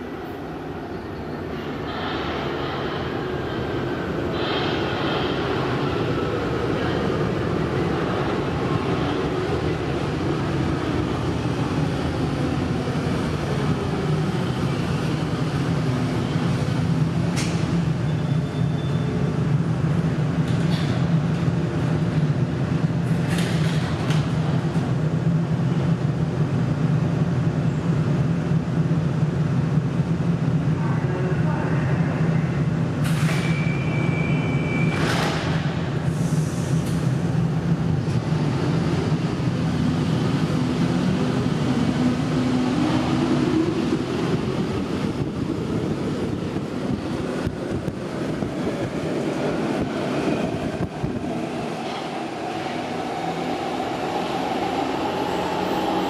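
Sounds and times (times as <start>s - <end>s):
low train hum: 0.0s - 56.0s
train rumble: 34.5s - 56.0s.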